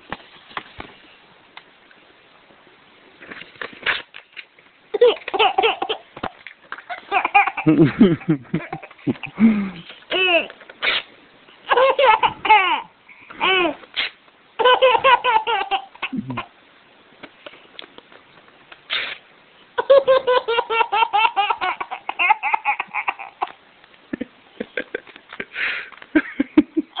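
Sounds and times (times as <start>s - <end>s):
paper ripping: 3.2s - 4.2s
baby laughing hysterically: 4.9s - 6.1s, 6.9s - 9.4s, 10.1s - 10.5s, 11.7s - 13.8s, 14.6s - 16.4s, 19.8s - 23.6s.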